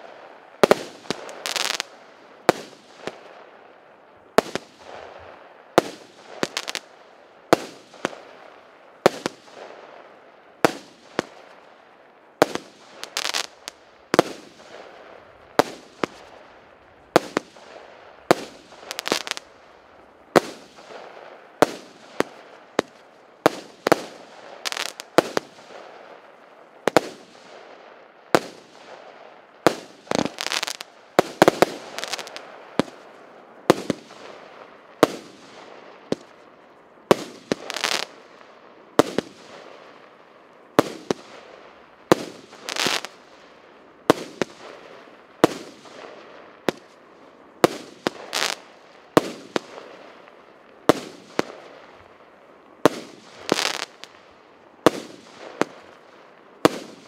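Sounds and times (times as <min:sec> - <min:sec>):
fireworks bangs: 0:12.4 - 0:19.5, 0:28.4 - 0:33.0, 0:37.1 - 0:38.1, 0:42.1 - 0:43.2, 0:47.6 - 0:50.0, 0:52.8 - 0:54.2, 0:54.8 - 0:57.0.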